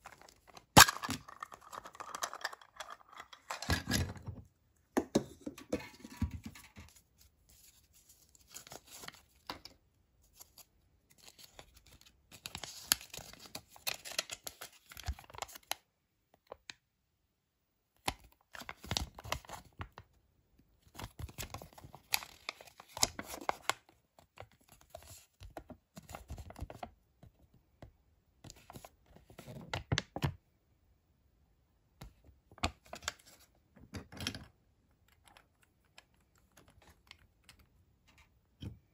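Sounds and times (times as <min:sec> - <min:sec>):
paper rustling and crinkling: 0:06.2 - 0:09.5, 0:20.9 - 0:23.8.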